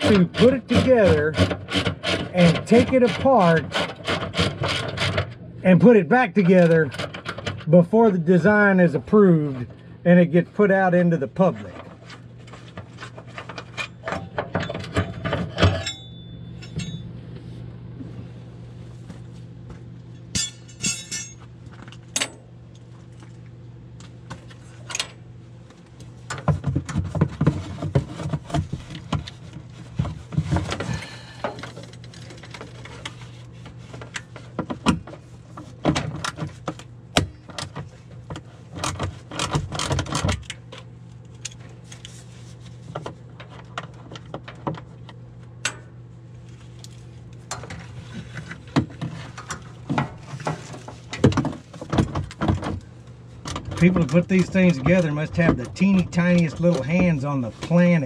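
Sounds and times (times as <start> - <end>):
steady low hum: 0.0 - 58.0
metal tools clinking and rattling: 13.2 - 17.1, 20.2 - 22.4.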